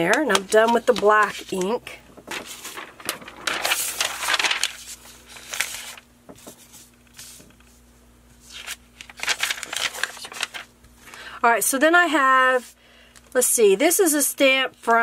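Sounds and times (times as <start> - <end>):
paper rustling: 0.0 - 7.8, 8.4 - 11.2.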